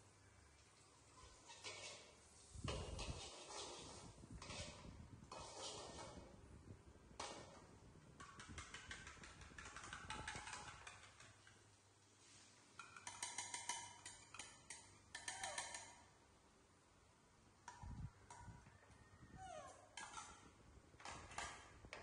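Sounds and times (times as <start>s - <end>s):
spoon scraping and tapping bowl: 8.2s - 11.6s, 12.8s - 16.0s.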